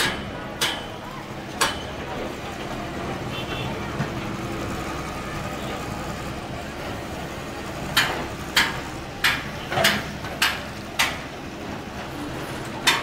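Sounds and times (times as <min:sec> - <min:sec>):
hammer striking metal: 0:00.0 - 0:00.9, 0:01.6 - 0:01.9, 0:08.0 - 0:11.2
street noise: 0:00.0 - 0:13.0.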